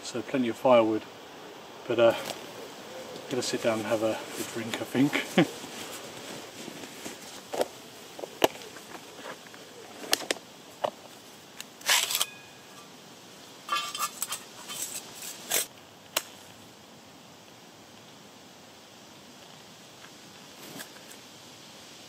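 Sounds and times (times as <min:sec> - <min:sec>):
metal plates clattering: 0:13.7 - 0:14.8.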